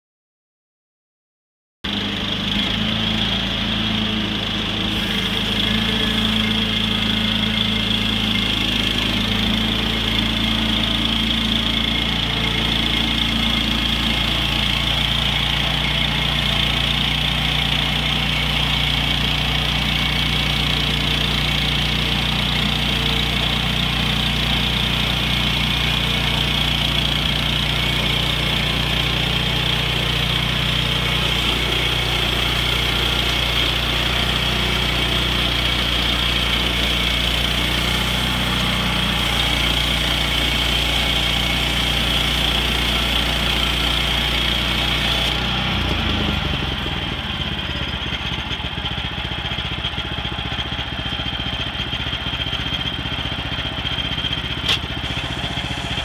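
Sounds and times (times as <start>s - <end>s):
sawmill engine running: 1.9s - 56.0s
band blade cutting log: 4.9s - 45.6s, 54.6s - 56.0s.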